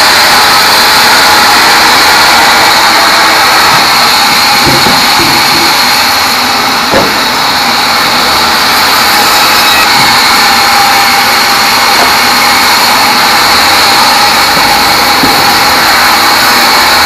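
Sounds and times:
bandsaw whining through log: 0.0s - 17.0s
wooden knocks: 4.6s - 5.9s, 6.9s - 7.3s, 14.6s - 15.6s.

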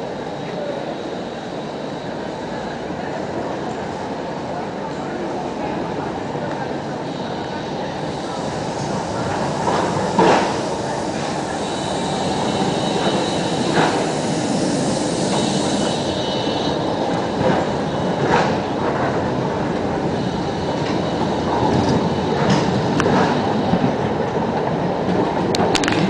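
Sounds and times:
tram wheels rumbling on rails: 0.0s - 26.0s
high wheel squeal: 7.0s - 18.2s.

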